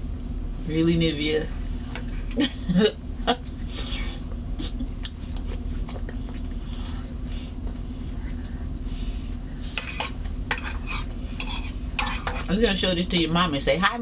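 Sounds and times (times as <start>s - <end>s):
low background hum: 0.0s - 14.0s
child chewing and slurping: 3.6s - 12.4s.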